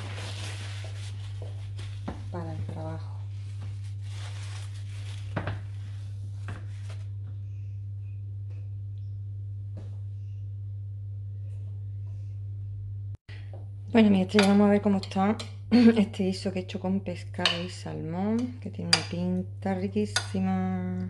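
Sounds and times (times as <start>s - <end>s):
paper towel rustling: 0.0s - 7.2s
low electrical hum: 0.0s - 21.0s.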